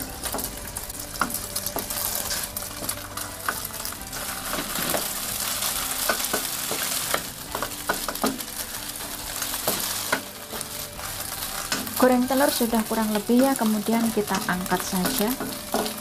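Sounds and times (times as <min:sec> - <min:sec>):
egg sizzling in hot oil: 0:00.0 - 0:16.0
wooden spatula scraping pan: 0:01.2 - 0:16.0.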